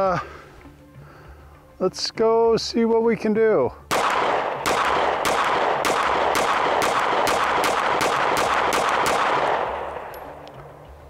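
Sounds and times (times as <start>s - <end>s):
pistol shots with echo: 3.9s - 10.8s.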